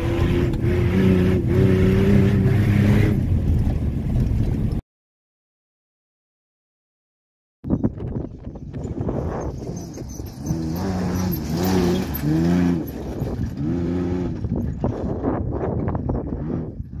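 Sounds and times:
truck engine revving: 0.0s - 4.6s, 8.8s - 17.0s
steady rumble: 0.0s - 4.8s.

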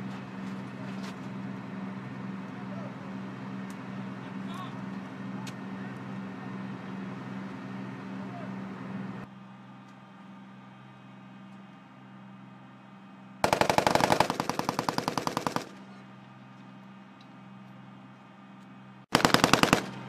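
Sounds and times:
steady low hum: 13.1s - 20.0s
automatic gunfire bursts: 13.4s - 15.9s, 19.1s - 20.0s.

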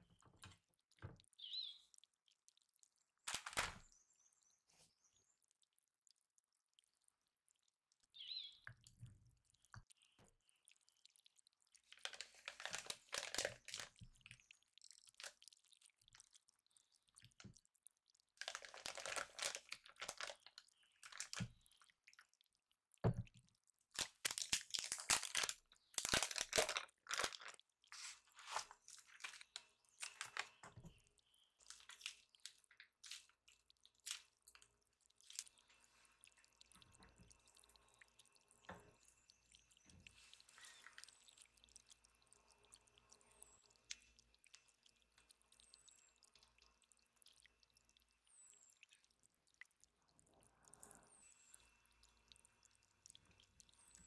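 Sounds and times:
plastic bag crinkling: 3.2s - 3.8s, 11.9s - 14.1s, 18.4s - 21.5s, 23.9s - 30.5s, 31.6s - 33.3s
faint handling sounds: 11.8s - 14.4s, 24.0s - 31.0s, 31.6s - 37.7s.

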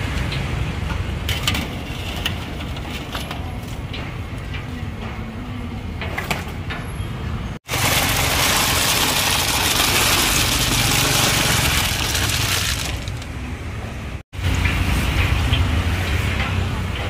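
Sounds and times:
snail shells rattling and splashing: 7.7s - 13.3s.

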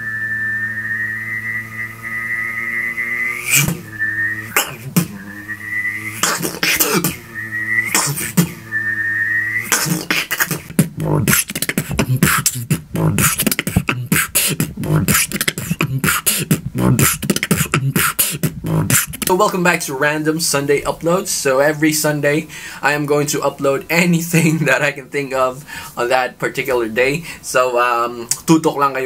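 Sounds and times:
beatboxed jet engine whistle: 0.0s - 19.5s
sharp mouth sounds: 3.0s - 19.4s
beatboxed beat: 3.3s - 20.0s, 28.2s - 28.6s.

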